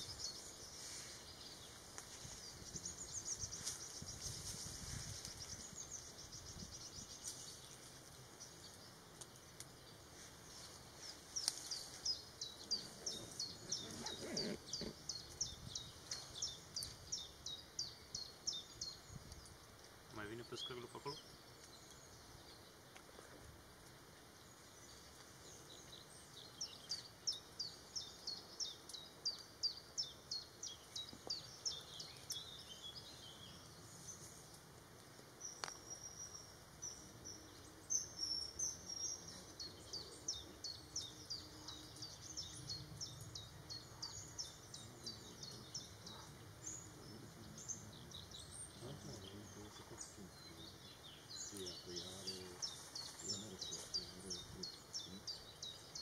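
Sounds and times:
faint outdoor background noise: 0.0s - 56.0s.

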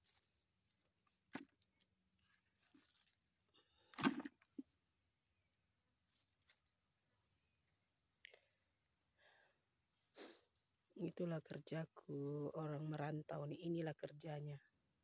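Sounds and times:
faint high-pitched hiss: 0.0s - 15.0s
fruit dropped into plastic bucket: 1.3s - 1.6s, 3.9s - 4.6s.

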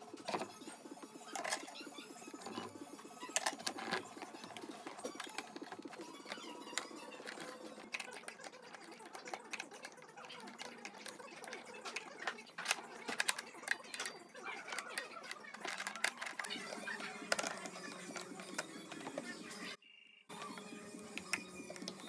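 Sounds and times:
metal parts clicking and rattling: 2.4s - 19.2s.

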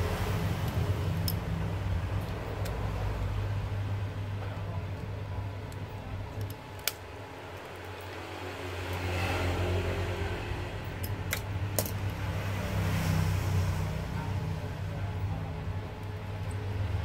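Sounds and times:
steady low hum: 0.0s - 17.0s
screwdriver clicks and taps: 6.4s - 7.0s.

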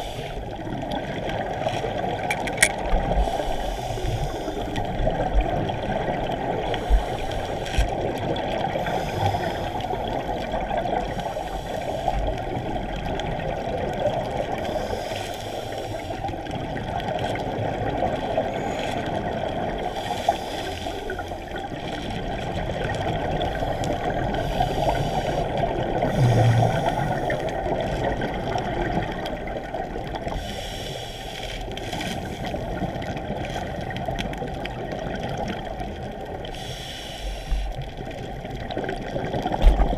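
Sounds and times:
muffled underwater rush: 0.0s - 39.9s
regulator exhaust bubbles: 25.7s - 27.5s.

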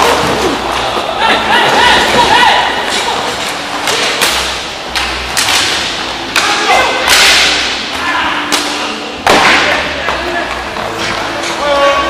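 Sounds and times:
skates scraping ice: 0.0s - 5.2s
sticks striking puck: 2.9s - 11.6s
puck hitting boards: 3.8s - 7.8s, 8.5s - 11.2s.

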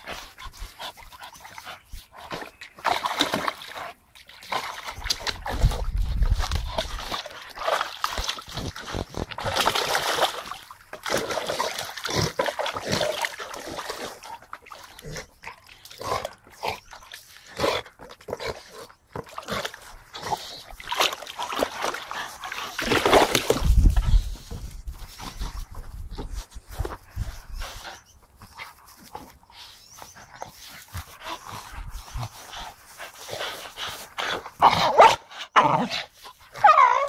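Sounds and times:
water splashing in paddling pool: 0.0s - 24.7s
dog sounds: 11.1s - 37.0s.

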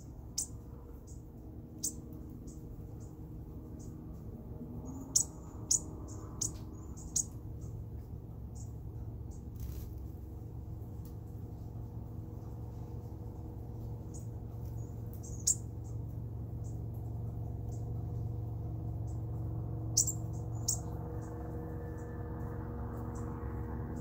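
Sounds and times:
songbird chip notes: 0.0s - 4.0s, 4.8s - 7.8s, 14.0s - 16.0s, 18.9s - 23.3s
steady low hum: 0.0s - 24.0s.

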